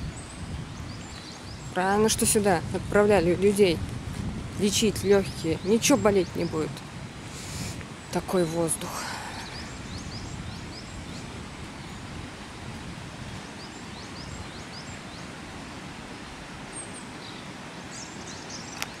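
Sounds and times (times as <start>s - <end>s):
river rushing: 0.0s - 19.0s
bird chirping: 9.4s - 12.0s.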